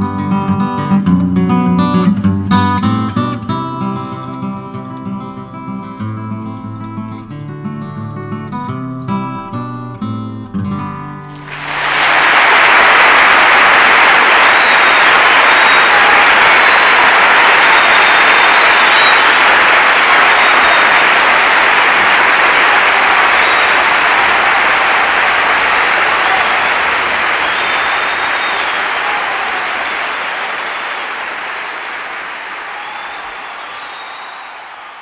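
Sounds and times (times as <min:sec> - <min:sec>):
audience applauding: 0:11.4 - 0:35.0.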